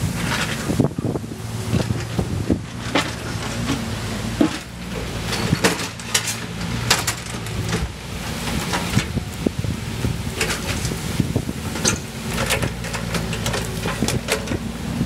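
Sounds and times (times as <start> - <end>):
excavator diesel engine hum: 0.0 - 15.0.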